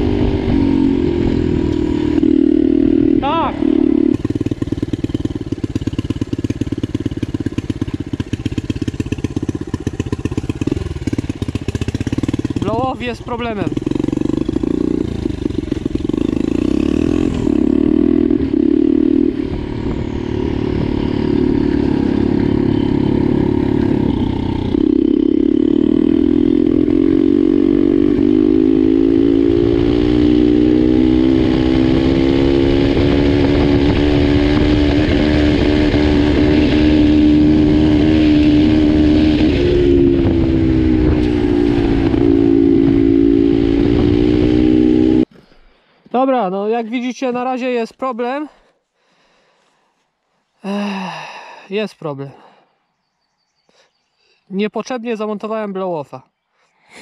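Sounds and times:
pit bike engine under load: 0:00.0 - 0:45.5
road rumble: 0:00.0 - 0:46.2
wind: 0:00.0 - 0:57.0.

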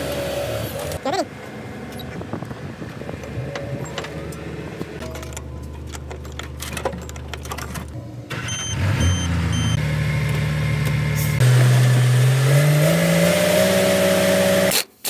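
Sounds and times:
diesel engine starting and revving: 0:00.0 - 0:14.8
short electronic beeps: 0:08.4 - 0:09.8.

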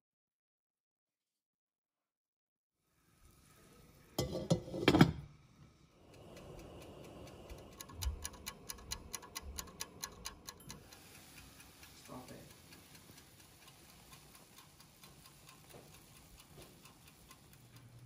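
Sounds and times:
syrup boiling: 0:02.9 - 0:18.0
pot lid rattling: 0:04.2 - 0:05.2
pot lid clattering down: 0:04.2 - 0:05.3.

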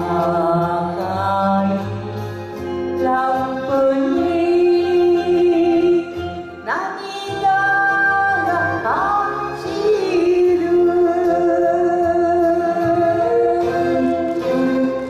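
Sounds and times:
woman singing ballad: 0:00.0 - 0:02.0, 0:02.9 - 0:15.0
instrumental backing music: 0:00.0 - 0:15.0.

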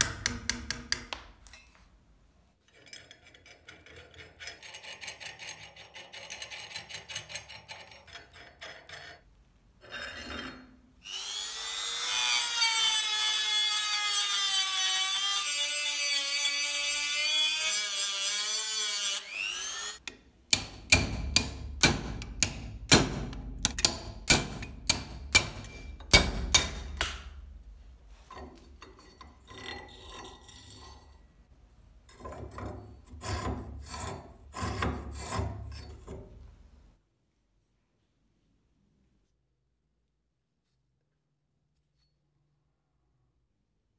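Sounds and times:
power drill cutting metal: 0:11.0 - 0:20.0
hammer striking steel punch: 0:20.5 - 0:27.4.

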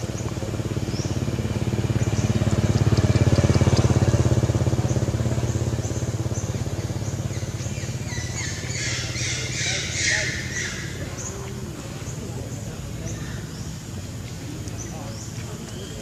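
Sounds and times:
small engine running: 0:00.0 - 0:11.3.

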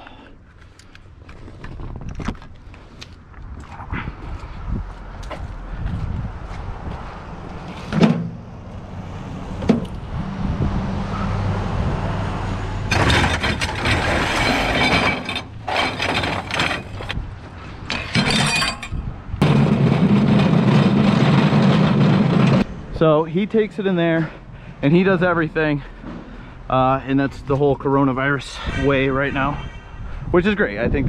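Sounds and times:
scrap metal clattering and crashing: 0:12.9 - 0:22.7.

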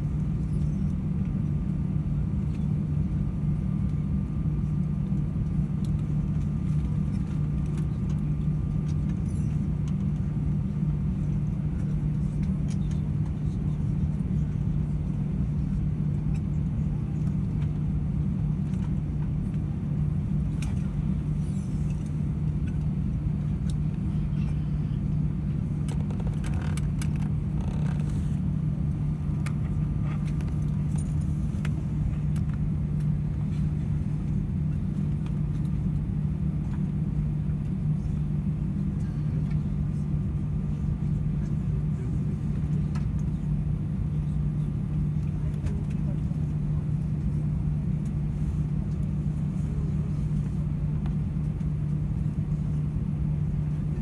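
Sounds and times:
airplane cabin drone: 0:00.0 - 0:54.0
faint clicks and rattles: 0:25.8 - 0:28.4.

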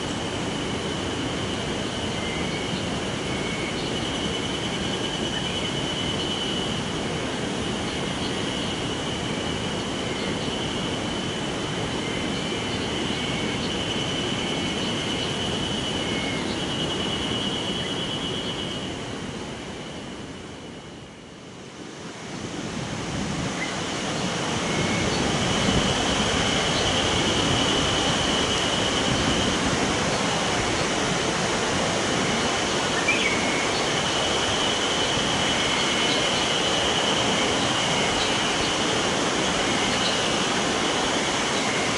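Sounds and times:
high buzzing insect chorus: 0:00.0 - 0:41.9
river water rushing over stones: 0:21.7 - 0:41.9.

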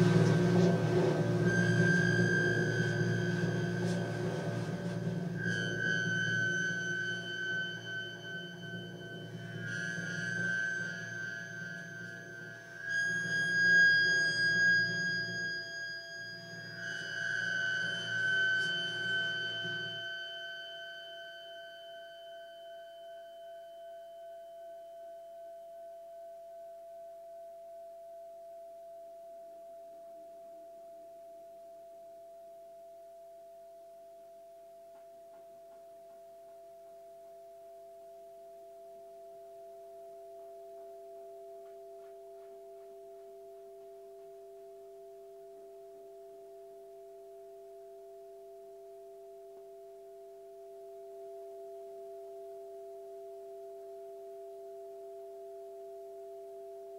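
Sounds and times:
two-note electronic drone: 0:00.0 - 0:25.6.

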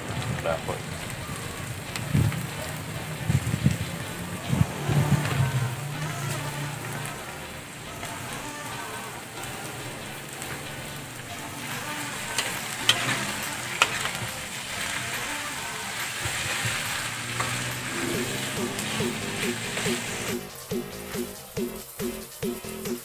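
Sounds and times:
food sizzling in a wok: 0:00.0 - 0:23.0
spatula clacking on pan: 0:09.1 - 0:20.4
spatula scraping a pan: 0:11.3 - 0:20.3.

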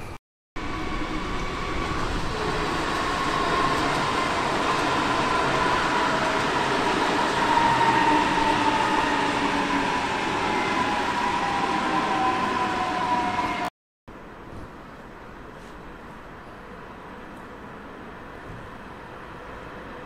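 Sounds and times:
train running on rails: 0:00.6 - 0:20.0.

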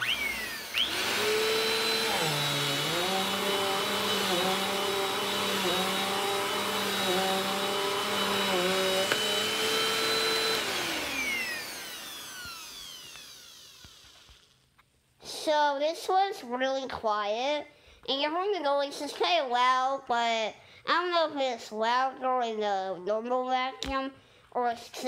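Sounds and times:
vacuum cleaner motor whining: 0:00.0 - 0:14.5.

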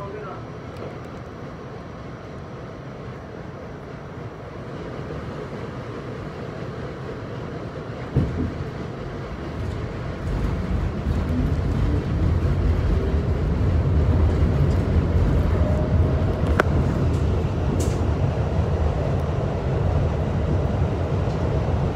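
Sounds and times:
subway train rumble: 0:00.0 - 0:21.9
train whine rising in pitch: 0:12.9 - 0:20.0.

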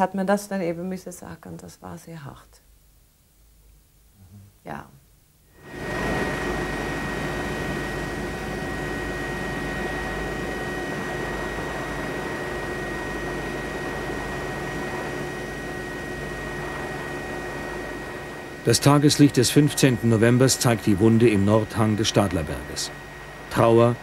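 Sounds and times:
high steady whine: 0:02.7 - 0:24.0
helicopter cabin drone: 0:05.5 - 0:24.0.

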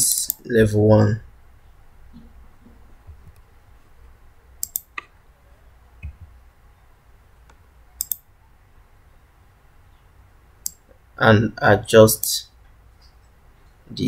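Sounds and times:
mouse and keyboard clicks: 0:04.6 - 0:05.1, 0:07.5 - 0:08.2.

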